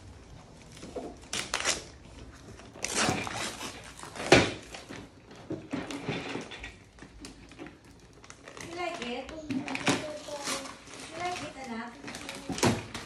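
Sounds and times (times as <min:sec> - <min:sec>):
paper and cardboard tearing: 0:01.2 - 0:04.9, 0:08.2 - 0:13.0.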